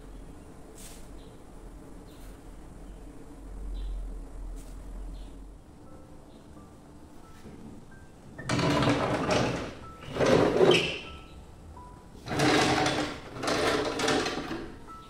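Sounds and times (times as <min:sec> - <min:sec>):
sliding window scraping: 0:08.4 - 0:11.1, 0:12.2 - 0:14.8.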